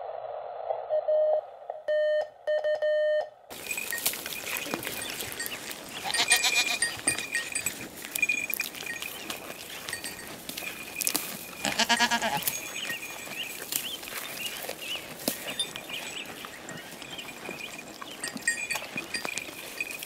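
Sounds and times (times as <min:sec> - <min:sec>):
goats browsing twigs: 0:03.5 - 0:20.0
goat bleating: 0:04.0 - 0:13.4.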